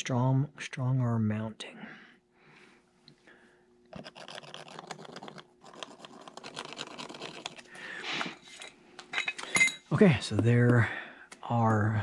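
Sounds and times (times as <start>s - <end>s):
pencil scratching on ceiling tile: 3.9s - 7.6s.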